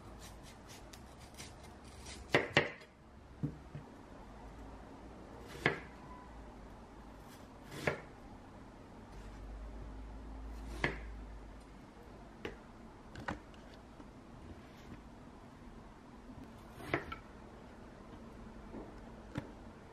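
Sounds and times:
knife cutting watermelon: 0.1s - 2.8s.

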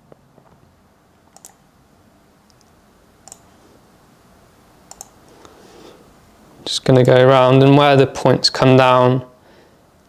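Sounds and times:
computer mouse clicks: 1.3s - 1.6s, 2.5s - 3.5s, 4.9s - 5.5s.

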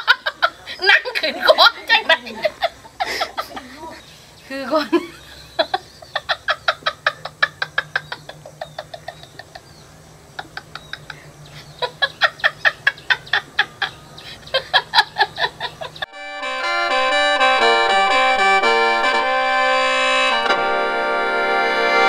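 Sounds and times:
woman laughing hard: 0.0s - 4.0s, 4.6s - 16.1s
accordion music: 16.0s - 22.0s.

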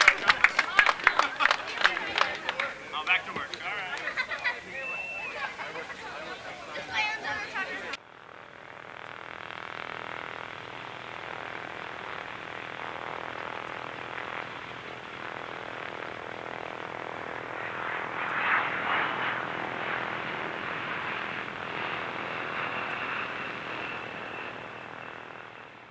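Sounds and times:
propeller aircraft engines roaring: 0.0s - 25.9s.

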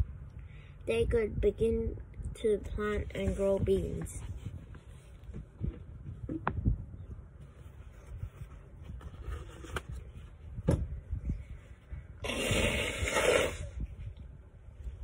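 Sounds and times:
person blowing nose: 12.2s - 13.9s.

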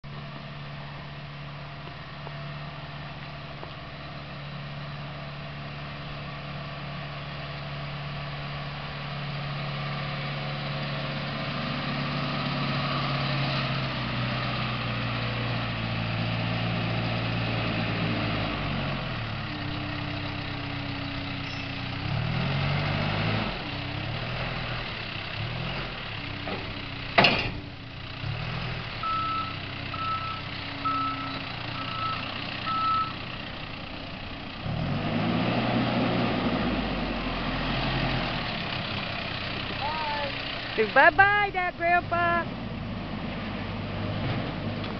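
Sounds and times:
diesel engine running: 0.0s - 44.9s
reversing alarm beeping: 29.0s - 33.2s.

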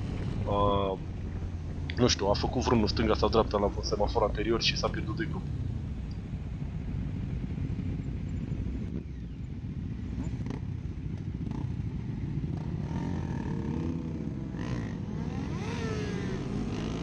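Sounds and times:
motorcycle engines idling and revving: 0.0s - 17.0s.

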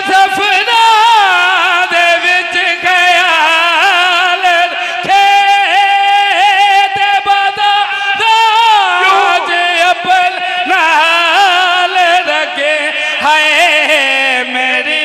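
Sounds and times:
man chanting a lament: 0.0s - 15.0s.

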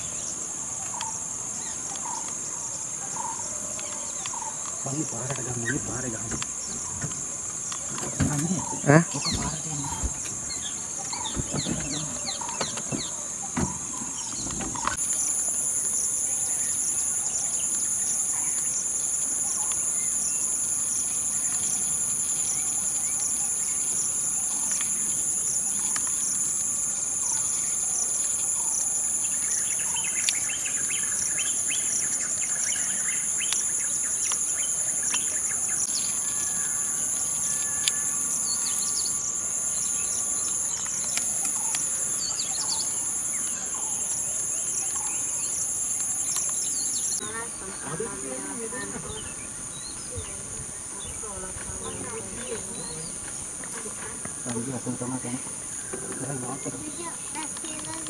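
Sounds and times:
bird chirps: 0.0s - 15.4s
high-pitched insect drone: 0.0s - 58.0s.

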